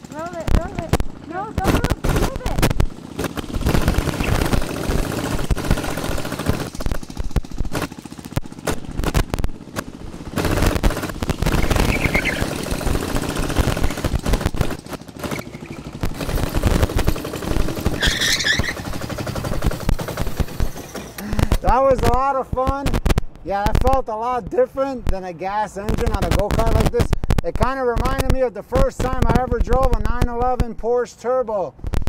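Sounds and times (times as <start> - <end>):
go-kart motor popping: 0.0 - 24.0, 25.9 - 30.8
brief squeaks: 17.9 - 18.8.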